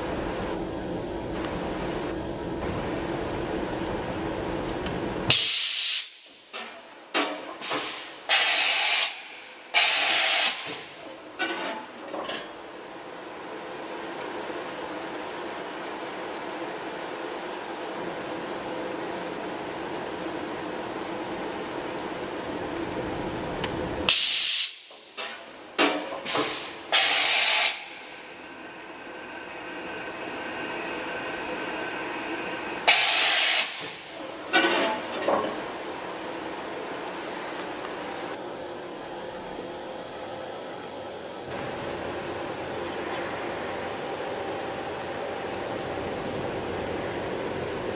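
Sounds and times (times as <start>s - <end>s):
machine hum: 0.0s - 5.4s, 27.8s - 33.2s, 34.0s - 47.9s
compressed air hisses: 5.3s - 6.1s, 7.6s - 10.9s, 26.3s - 28.0s, 32.9s - 34.1s.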